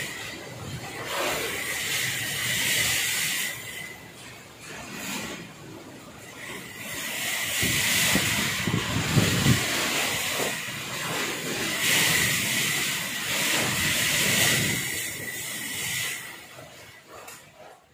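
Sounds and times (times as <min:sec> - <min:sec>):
wind: 0:00.0 - 0:17.9
heavy rain: 0:06.8 - 0:16.2
wind rumbling on microphone: 0:07.4 - 0:16.4.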